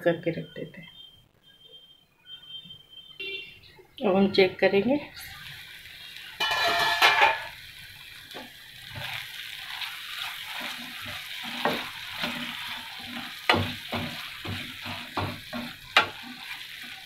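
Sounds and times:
sauce sizzling in a frying pan: 0:04.6 - 0:17.0
wooden spatula scraping a pan: 0:08.8 - 0:17.0.

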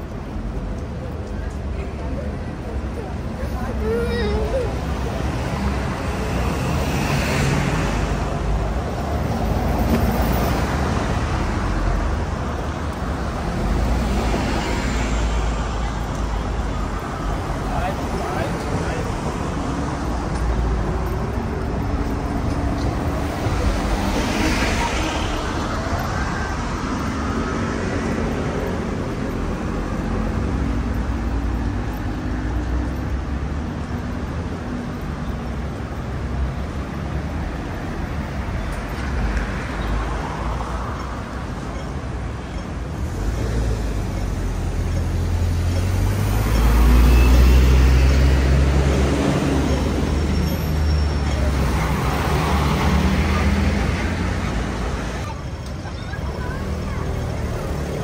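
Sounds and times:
road traffic drone: 0:00.0 - 0:58.0
vehicles passing: 0:00.0 - 0:58.0.

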